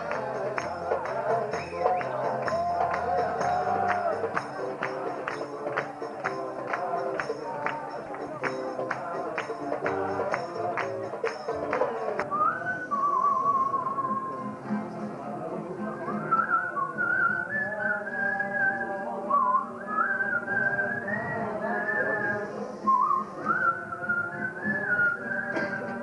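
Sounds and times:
acoustic guitar: 0:00.0 - 0:26.0
voices singing a melody: 0:00.0 - 0:26.0
person whistling a tune: 0:12.2 - 0:14.5, 0:16.0 - 0:26.0.

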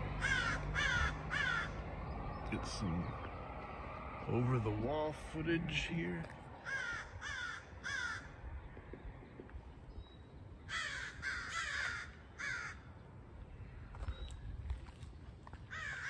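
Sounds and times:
crow cawing: 0:00.2 - 0:01.9, 0:06.6 - 0:08.4, 0:10.7 - 0:12.9, 0:15.7 - 0:16.0.

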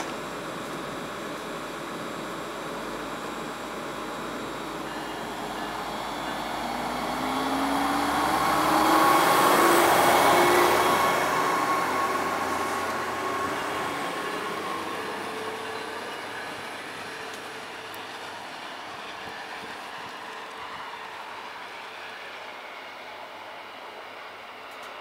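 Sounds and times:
diesel train pulling away: 0:00.0 - 0:25.0.

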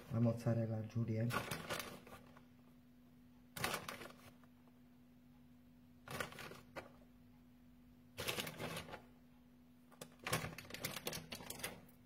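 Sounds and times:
rustling handling noise: 0:01.2 - 0:02.6, 0:03.5 - 0:04.6, 0:06.1 - 0:07.1, 0:08.2 - 0:09.2.

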